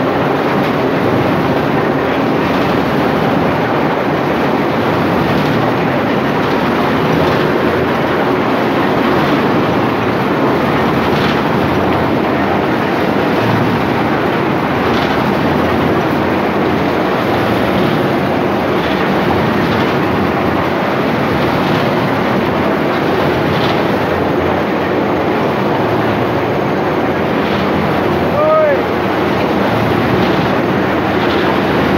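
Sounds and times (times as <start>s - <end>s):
machine rattling and rumbling: 0.0s - 31.9s.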